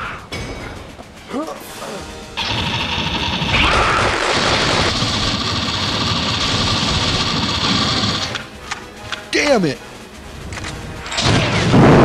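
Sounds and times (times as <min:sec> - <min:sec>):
rapid automatic gunfire: 0:02.4 - 0:08.5.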